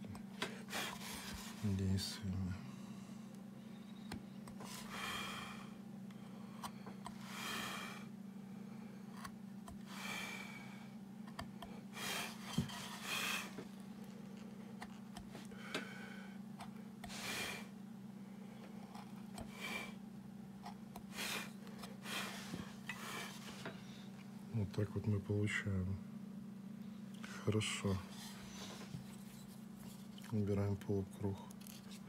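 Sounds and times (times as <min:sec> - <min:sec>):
steady low hum: 0:00.0 - 0:32.0
person breathing in puffs: 0:04.6 - 0:09.1, 0:09.8 - 0:11.0, 0:11.8 - 0:13.6, 0:15.4 - 0:16.4, 0:17.0 - 0:17.7, 0:21.1 - 0:24.1
gouge scraping wood: 0:11.3 - 0:13.8.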